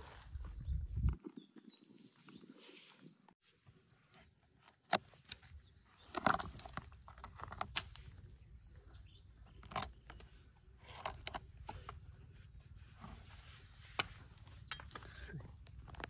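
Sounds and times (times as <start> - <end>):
tweezers scraping rotten wood: 4.7 - 16.0.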